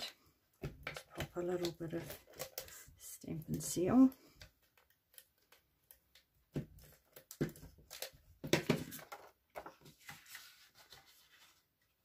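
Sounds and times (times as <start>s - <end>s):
paper rustling: 7.8s - 12.0s.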